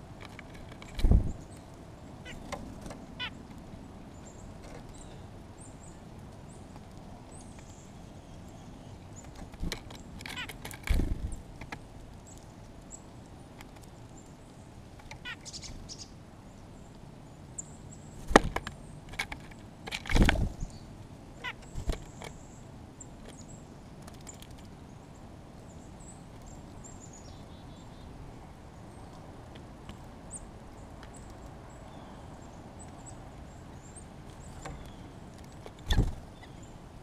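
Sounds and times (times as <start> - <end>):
faint small bird chirps: 15.2 - 16.2
woodpecker pecking knocks: 18.2 - 20.7.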